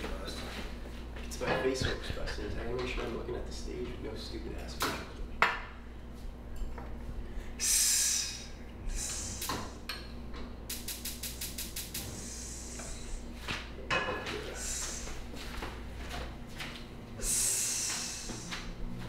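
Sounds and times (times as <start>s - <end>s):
man exhaling sharply: 7.6s - 9.5s, 17.2s - 18.6s.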